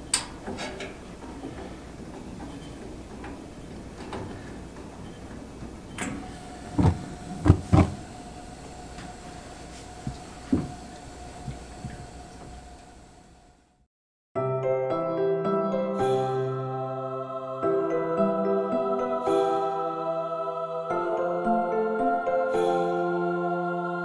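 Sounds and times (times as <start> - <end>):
burner igniting thumps: 6.7 - 8.1.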